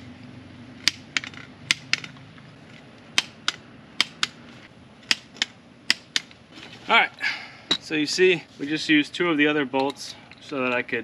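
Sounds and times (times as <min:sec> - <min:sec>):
hand ratchet clicking: 0:03.2 - 0:04.4.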